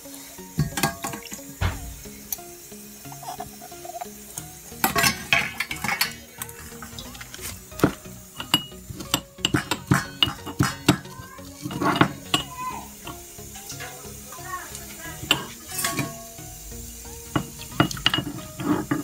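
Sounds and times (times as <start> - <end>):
steel utensils clinking: 0.5 - 16.6, 17.2 - 19.0
metal spoon scraping steel pot: 4.8 - 10.8, 17.4 - 19.0.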